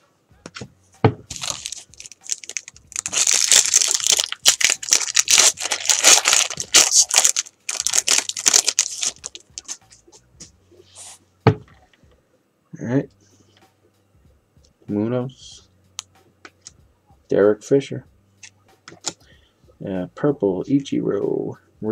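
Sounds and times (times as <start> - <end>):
foil wrapper tearing and crinkling: 1.3 - 9.8.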